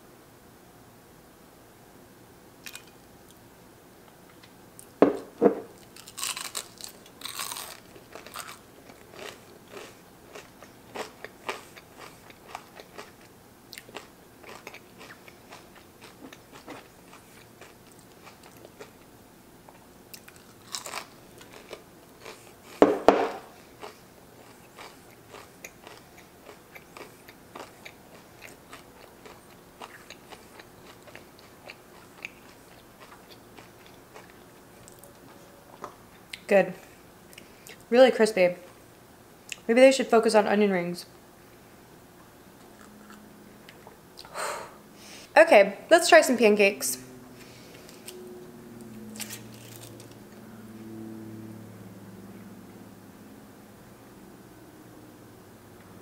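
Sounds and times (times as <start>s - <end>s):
crunching fried onion ring: 5.8s - 19.1s, 20.1s - 22.8s, 23.5s - 35.2s, 48.8s - 50.2s.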